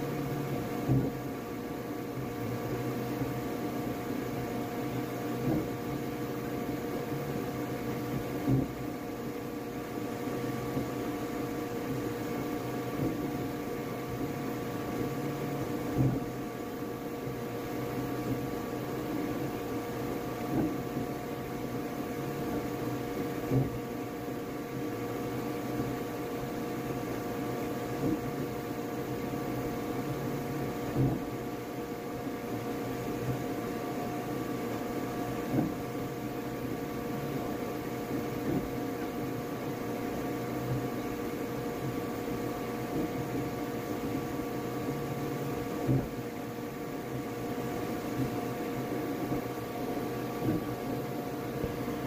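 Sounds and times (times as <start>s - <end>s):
three d printer whine and hum: 0.0s - 52.0s.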